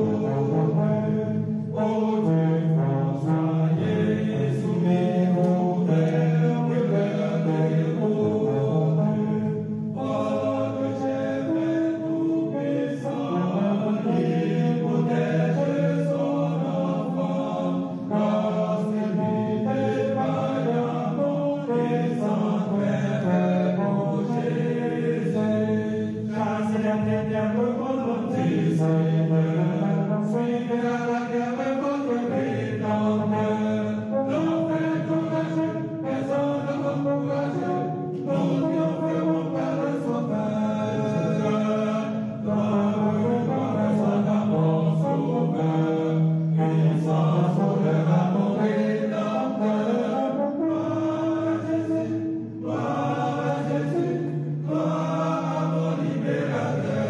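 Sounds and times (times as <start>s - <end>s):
chant-like singing: 0.0s - 57.0s.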